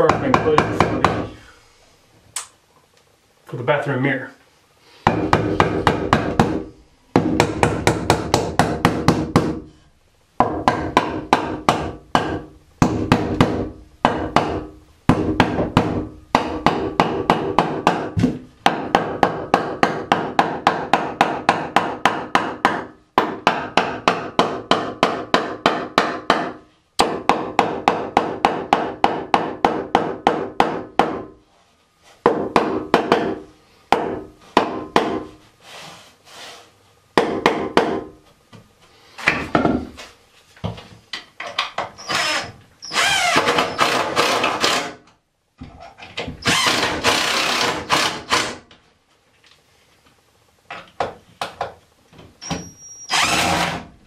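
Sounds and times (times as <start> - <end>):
hammer striking wood: 0.0 - 1.3, 5.0 - 9.7, 10.4 - 31.3, 32.2 - 35.3, 37.2 - 38.1.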